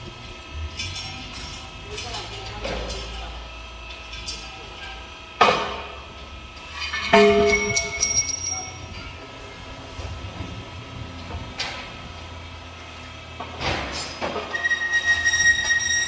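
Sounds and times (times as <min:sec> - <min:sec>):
low machinery hum: 0:00.0 - 0:16.0
metal equipment clanking: 0:06.7 - 0:09.2
high squeal: 0:14.5 - 0:16.0.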